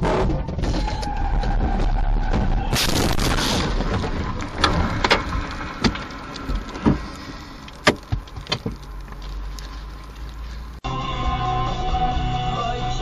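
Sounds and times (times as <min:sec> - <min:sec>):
vehicle crash: 0:00.0 - 0:09.1
low rumble: 0:00.2 - 0:13.0.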